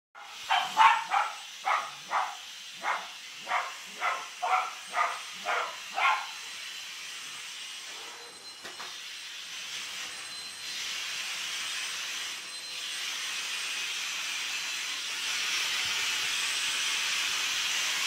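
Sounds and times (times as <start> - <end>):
dog barking: 0.2 - 6.4.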